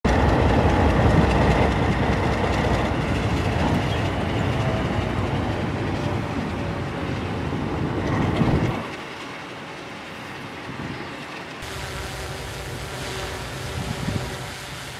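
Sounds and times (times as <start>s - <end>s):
train wheels clattering on rails: 0.1s - 11.6s.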